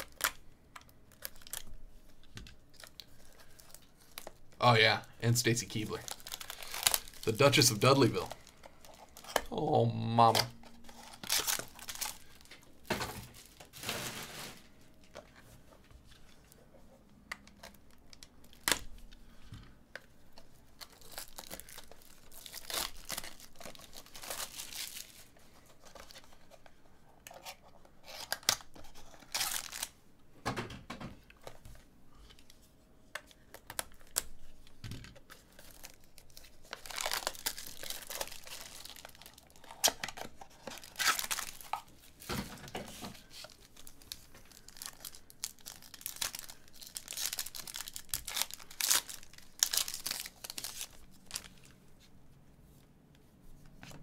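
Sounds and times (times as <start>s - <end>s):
foil wrappers crinkling and tearing: 0.0s - 15.2s, 20.3s - 26.6s, 27.2s - 30.0s, 33.3s - 51.8s.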